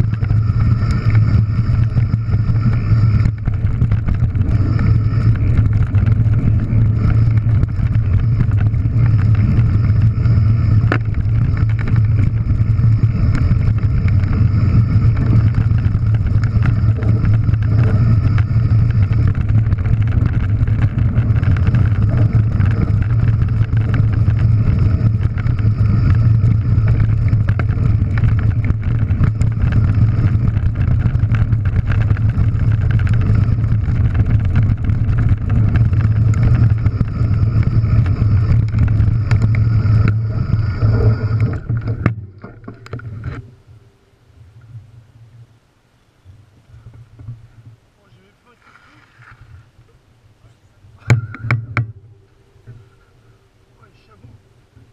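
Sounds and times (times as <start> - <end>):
wind on microphone: 0.0 - 43.6
bike tyres rumbling on gravel: 0.0 - 49.9, 50.9 - 54.9.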